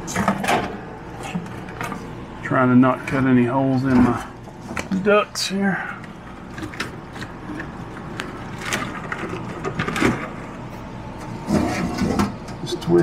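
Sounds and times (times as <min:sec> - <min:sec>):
metal casing scraping wood: 0:06.2 - 0:12.5.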